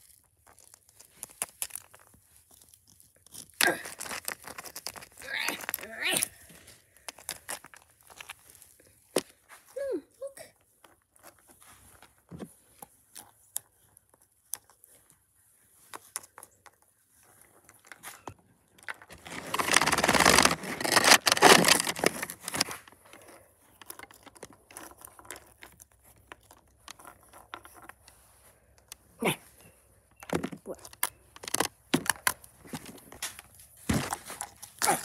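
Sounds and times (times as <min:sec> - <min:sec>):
rustling scraping: 0:18.9 - 0:28.8.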